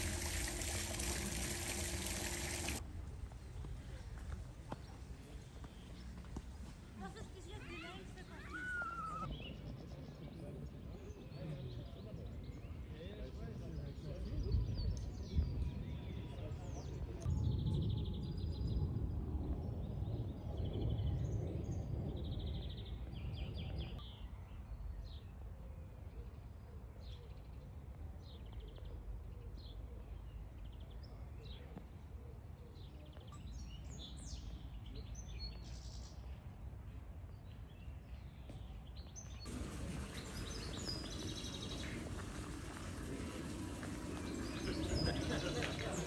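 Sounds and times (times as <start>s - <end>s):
small birds chirping: 37.3s - 46.0s.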